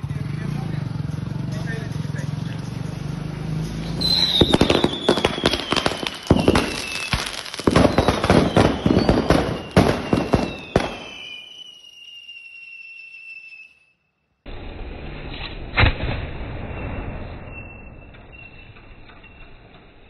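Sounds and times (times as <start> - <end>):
firecrackers banging and crackling: 0.0 - 12.1, 14.5 - 20.0
high whistle falling in pitch: 4.0 - 14.1.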